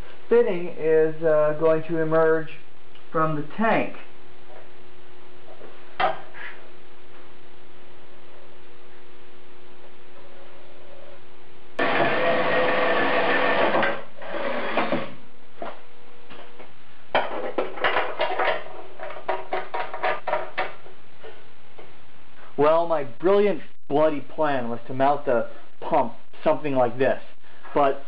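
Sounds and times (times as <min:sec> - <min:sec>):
electric drill cutting sheet metal: 0:11.8 - 0:15.2.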